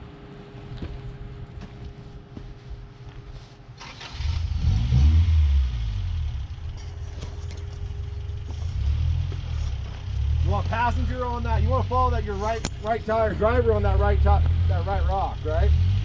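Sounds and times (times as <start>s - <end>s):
truck engine revving: 3.8s - 16.0s.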